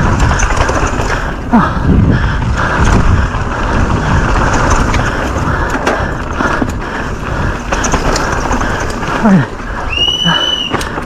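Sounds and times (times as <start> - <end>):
wind rushing on microphone: 0.0 - 8.6
bike rattling clicks: 0.0 - 11.0.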